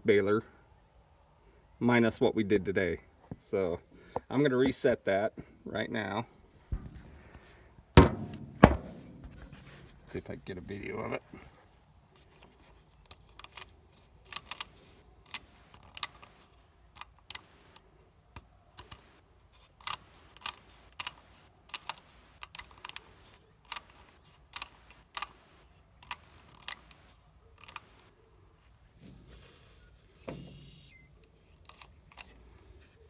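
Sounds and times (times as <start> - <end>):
counter digit wheels clicking: 19.8 - 28.0.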